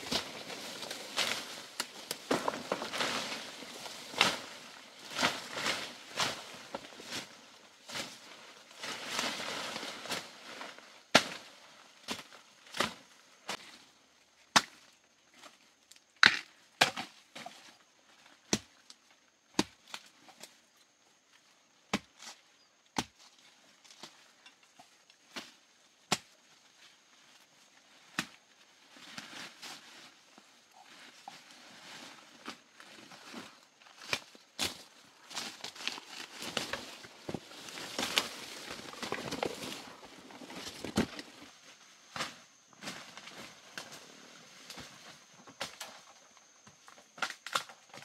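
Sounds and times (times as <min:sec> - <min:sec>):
undergrowth rustling: 0:00.0 - 0:14.0, 0:21.4 - 0:48.0
bamboo shoots snapping: 0:34.0 - 0:39.8, 0:47.2 - 0:48.0.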